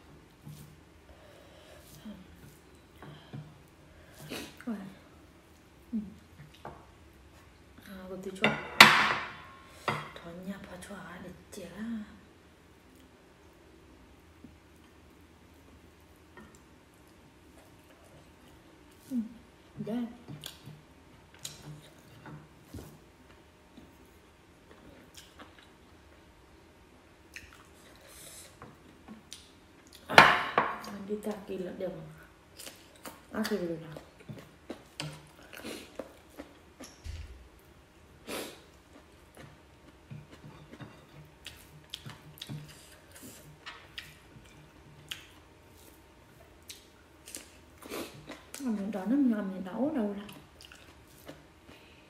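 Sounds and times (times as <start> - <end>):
faint chewing: 20.2 - 26.2, 27.3 - 30.1, 32.5 - 48.8, 50.2 - 52.0.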